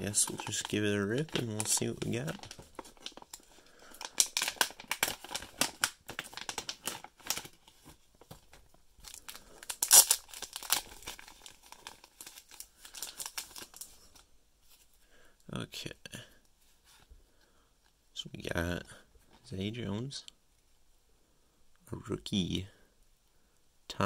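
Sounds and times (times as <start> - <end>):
plastic bag crinkling: 0.0 - 14.3
plastic pouch tearing and crinkling: 0.0 - 14.3.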